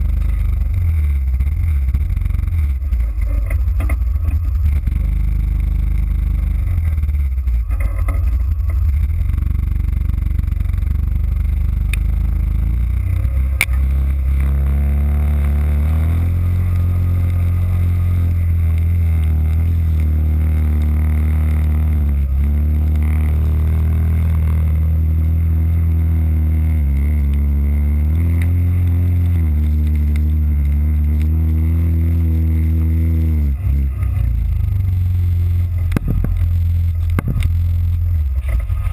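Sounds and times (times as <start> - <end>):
sharp ticks: 0.0 - 14.5
atv engine rumbling: 0.0 - 38.9.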